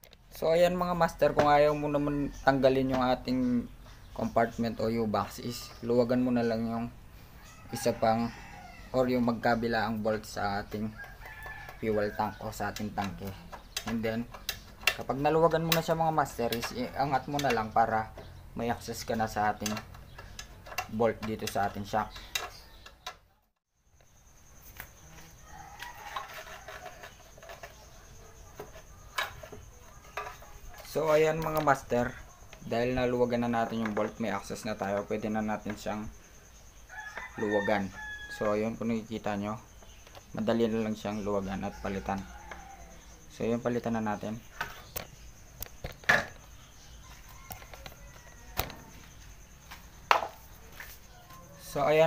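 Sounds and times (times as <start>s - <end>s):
handling clicks and knocks: 10.1s - 23.3s, 25.8s - 36.2s, 43.6s - 51.8s.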